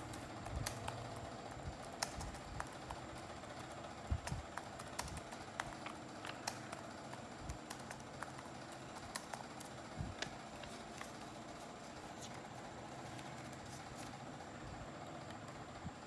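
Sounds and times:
newspaper crackling: 0:08.8 - 0:14.2.

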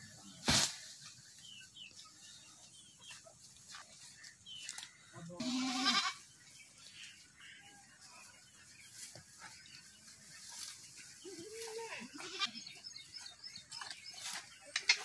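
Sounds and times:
goat bleating: 0:05.4 - 0:06.2, 0:11.2 - 0:12.7.

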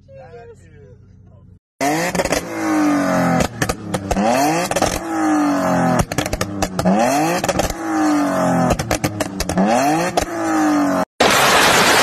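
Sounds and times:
car engine revving: 0:01.8 - 0:12.0
exhaust pops and crackles: 0:05.9 - 0:07.8, 0:08.6 - 0:10.3, 0:11.2 - 0:12.0.

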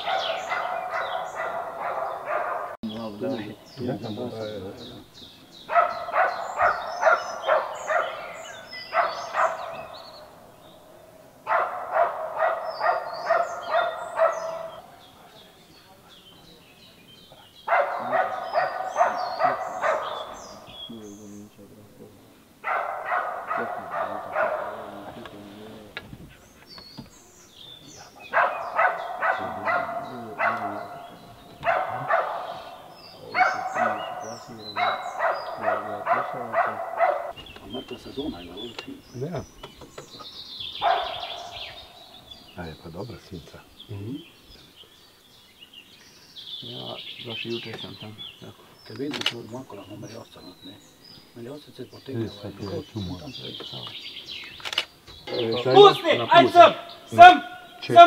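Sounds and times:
dog barking: 0:00.0 - 0:02.8, 0:05.6 - 0:10.4, 0:11.4 - 0:15.0, 0:17.6 - 0:20.8, 0:22.6 - 0:25.5, 0:28.2 - 0:37.4, 0:40.8 - 0:42.2
bird chirps: 0:00.0 - 0:58.0.

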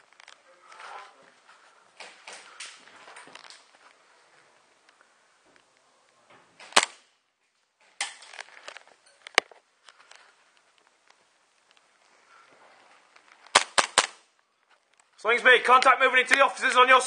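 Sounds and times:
airsoft gun shots: 0:06.7 - 0:07.1, 0:13.5 - 0:14.2.

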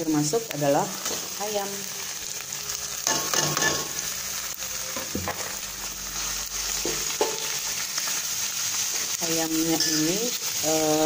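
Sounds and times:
meat sizzling in hot oil: 0:00.0 - 0:11.0
metal spatula stirring in wok: 0:08.8 - 0:10.5.

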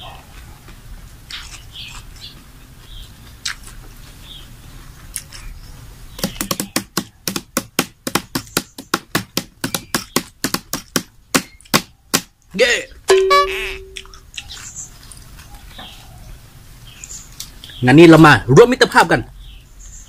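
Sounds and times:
person chewing: 0:00.0 - 0:03.9, 0:05.0 - 0:05.6, 0:13.4 - 0:15.8.

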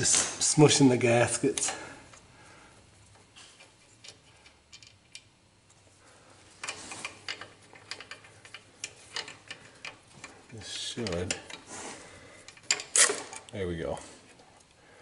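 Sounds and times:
hand ratchet clicking: 0:06.6 - 0:11.7.

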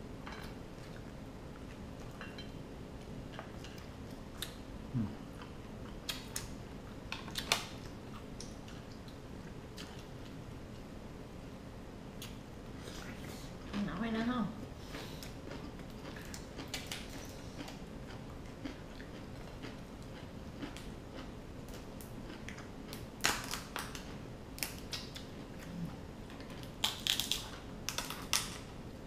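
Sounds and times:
crab shell cracking: 0:26.6 - 0:28.7.

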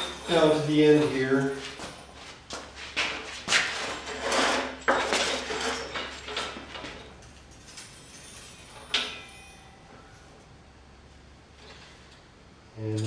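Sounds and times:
metal tube clanking and scraping: 0:03.0 - 0:09.8
sharp metal clank: 0:08.5 - 0:09.8.

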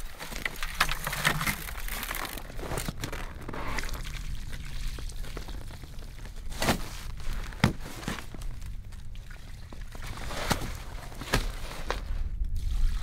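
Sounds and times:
snow slush crunching: 0:10.0 - 0:12.3.

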